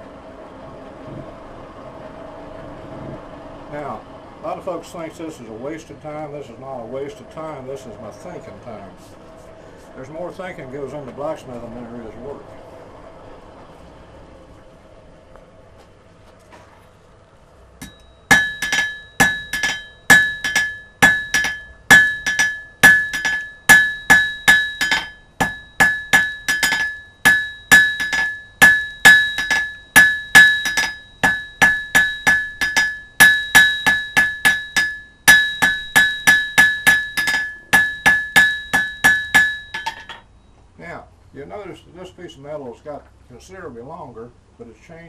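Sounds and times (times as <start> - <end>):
hammer striking iron on anvil: 17.8 - 40.3.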